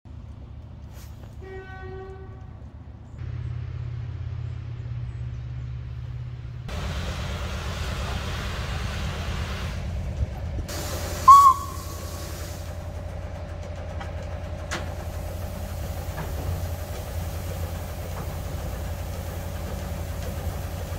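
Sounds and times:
short shrill whistle toot: 11.2 - 12.0
faint held whistle tone: 11.2 - 12.1.

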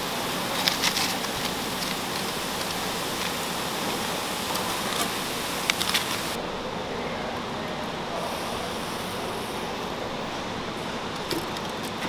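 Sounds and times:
sharp crackles: 0.0 - 6.4
shrimp sizzling: 0.0 - 6.4, 8.0 - 11.6.

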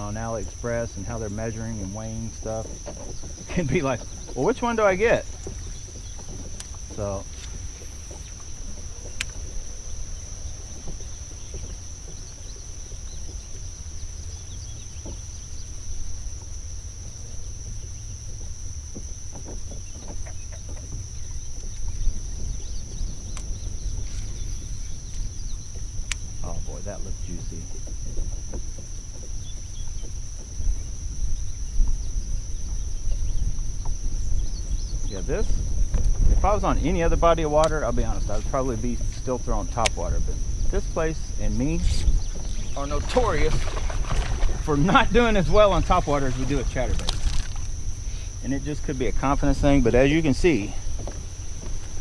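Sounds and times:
insects shrilling: 0.0 - 52.0
sharp clicks: 39.8 - 40.0.

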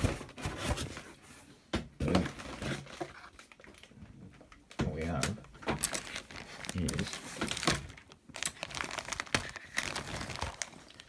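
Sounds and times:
packaging rustling and crinkling: 2.0 - 4.0, 4.9 - 11.0.

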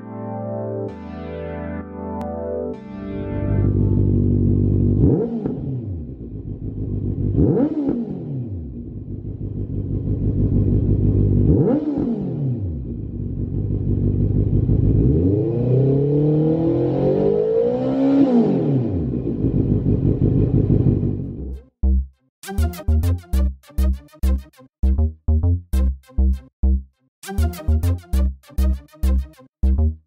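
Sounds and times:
motorcycle engine idling and revving: 3.6 - 21.8.

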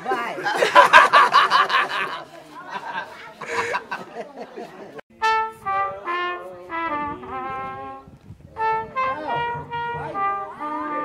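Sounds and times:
trombone playing held notes: 5.1 - 11.0
trumpet playing held notes: 5.1 - 11.0.

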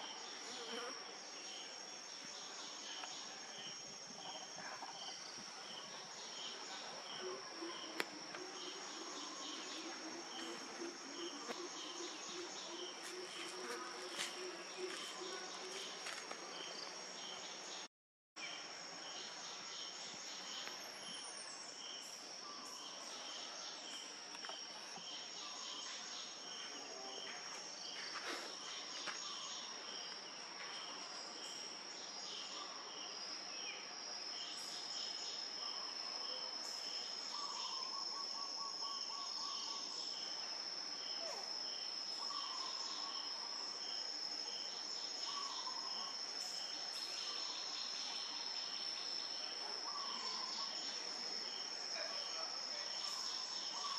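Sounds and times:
insect high-pitched drone: 0.0 - 17.8
insect chirping: 0.0 - 53.9.

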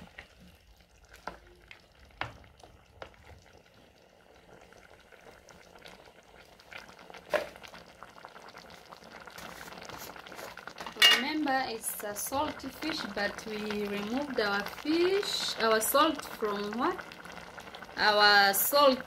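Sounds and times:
wooden spoon stirring: 0.0 - 3.6
stew simmering in a pot: 0.0 - 19.0
spoon knocking against pot: 11.0 - 11.3.

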